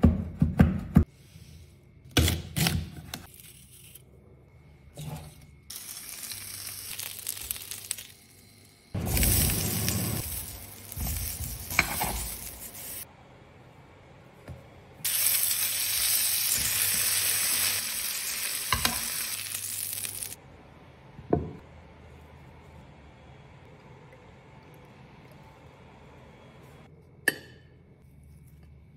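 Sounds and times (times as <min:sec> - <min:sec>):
meat sizzling in frying pan: 0:05.7 - 0:08.2, 0:09.1 - 0:13.0, 0:15.1 - 0:20.4.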